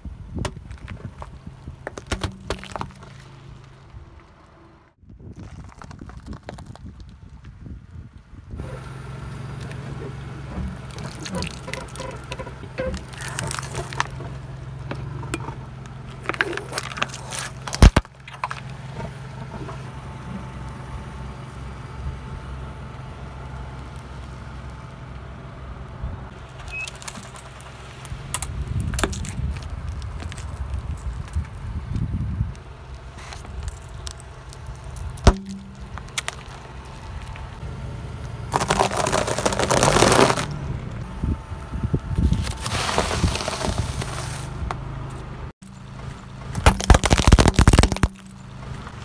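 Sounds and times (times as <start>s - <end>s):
car engine humming: 8.5s - 49.0s
objects bursting and squelching: 38.5s - 40.5s, 46.6s - 48.3s.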